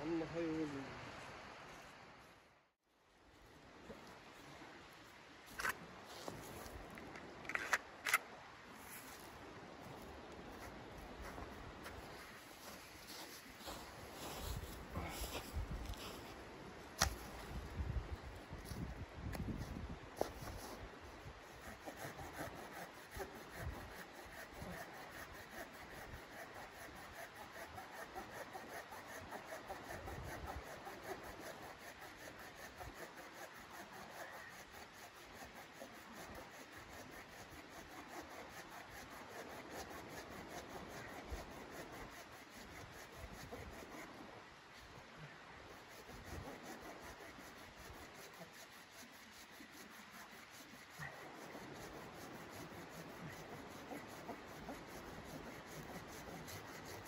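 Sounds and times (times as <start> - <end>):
hand saw cutting log: 20.2 - 44.2, 45.7 - 57.0.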